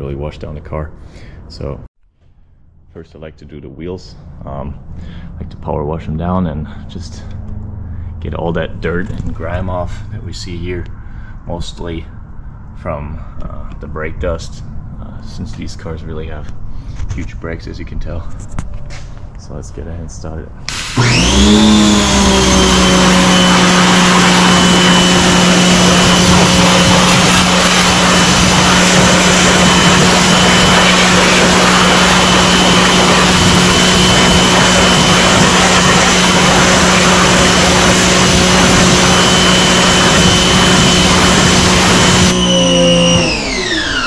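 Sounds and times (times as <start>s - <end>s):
pressure washer motor hum: 20.7s - 44.0s.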